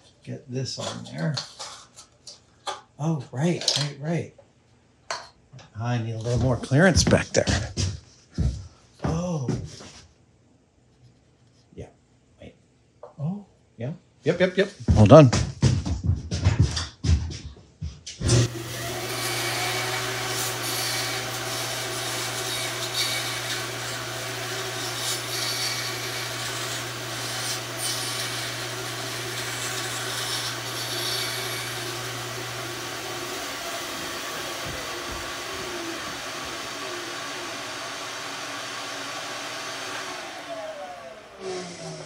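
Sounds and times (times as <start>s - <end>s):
bandsaw sawing: 18.3s - 42.0s.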